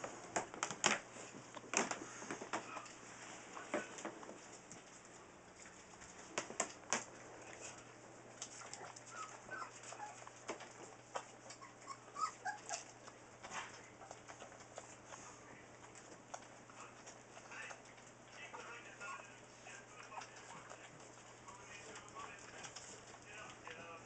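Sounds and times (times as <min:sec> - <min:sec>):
kibble crunching: 0:00.0 - 0:24.0
puppies whimpering: 0:08.5 - 0:10.4, 0:11.2 - 0:13.2, 0:19.9 - 0:23.3.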